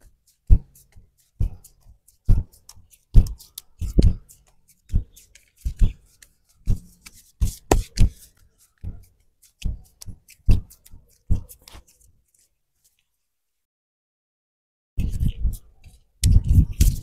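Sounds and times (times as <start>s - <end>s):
hands slapping skin: 0.5s - 12.5s.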